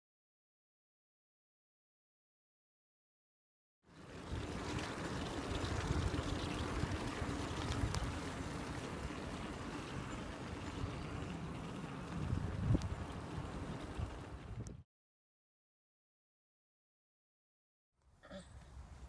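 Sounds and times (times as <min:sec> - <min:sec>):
bicycle wheels rolling on tarmac: 0:03.8 - 0:14.8
wind rushing over microphone: 0:12.0 - 0:14.8.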